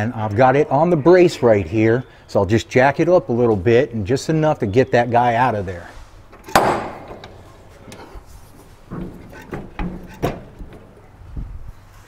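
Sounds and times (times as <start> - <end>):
jack clanking and clunking: 6.3 - 11.4.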